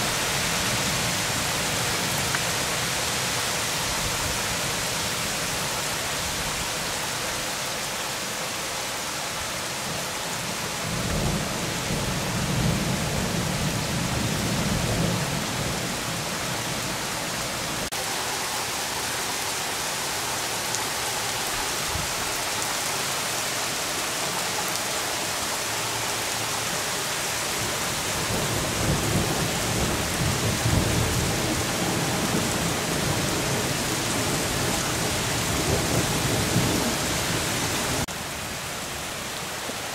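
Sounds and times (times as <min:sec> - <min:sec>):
heavy rain on pavement and roofs: 0:00.0 - 0:39.9.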